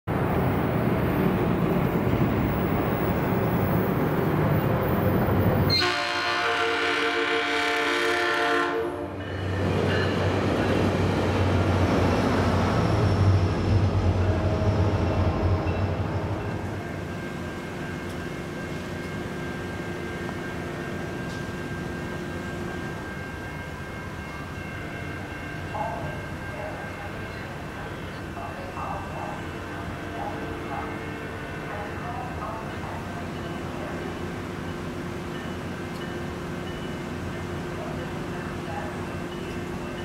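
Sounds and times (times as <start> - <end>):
train air horn: 5.7 - 9.2
train wheels on rails: 9.1 - 40.0.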